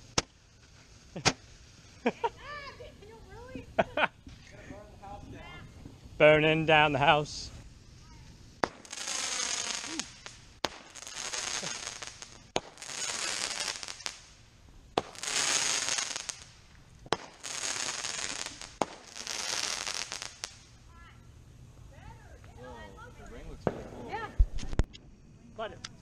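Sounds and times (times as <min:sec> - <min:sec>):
firework pops: 0:00.0 - 0:01.6, 0:08.2 - 0:14.3, 0:14.9 - 0:20.6, 0:23.6 - 0:25.1
firework shot hissing: 0:00.0 - 0:02.5, 0:07.4 - 0:20.8.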